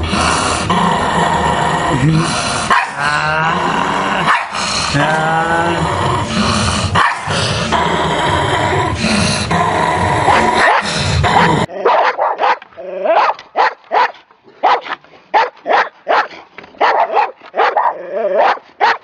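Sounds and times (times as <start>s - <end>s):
dog growling and snarling: 0.0s - 11.9s
dog barking: 2.7s - 3.0s, 4.3s - 4.6s, 7.0s - 7.3s, 10.3s - 19.0s.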